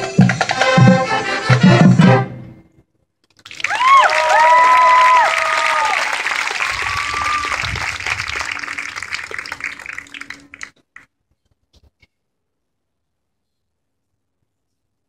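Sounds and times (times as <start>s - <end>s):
crowd applause and cheering: 3.4s - 10.8s.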